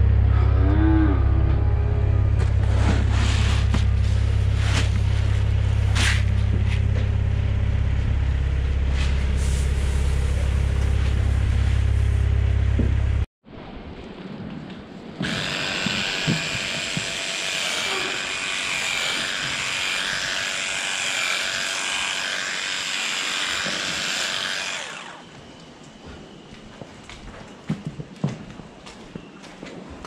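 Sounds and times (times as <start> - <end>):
electric clippers buzzing: 15.2 - 25.3.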